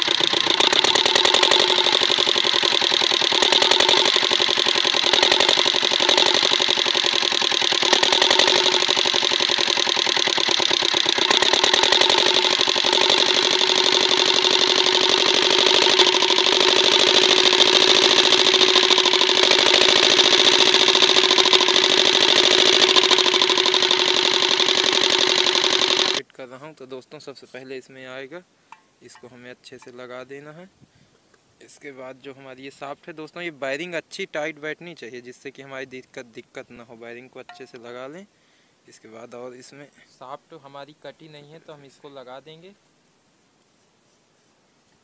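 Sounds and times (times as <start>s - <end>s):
diesel engine running: 0.0s - 26.2s.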